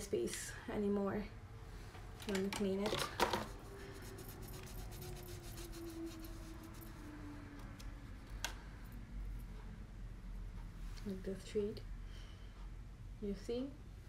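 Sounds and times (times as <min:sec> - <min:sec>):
rubbing and scratching on skin: 0:03.5 - 0:07.0.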